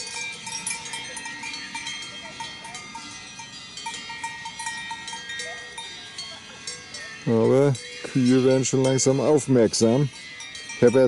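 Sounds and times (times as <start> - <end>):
cowbells clanking: 0.0 - 11.0.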